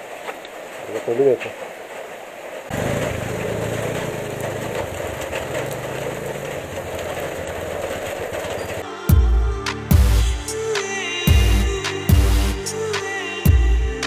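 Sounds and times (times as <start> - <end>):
rain hiss: 0.0 - 8.8
motorcycle engine idling: 2.7 - 8.8.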